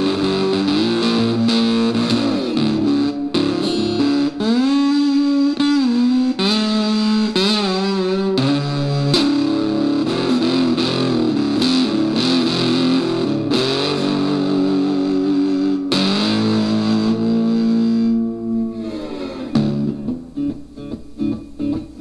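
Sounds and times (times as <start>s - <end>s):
electric guitar notes and chords: 0.0s - 22.0s.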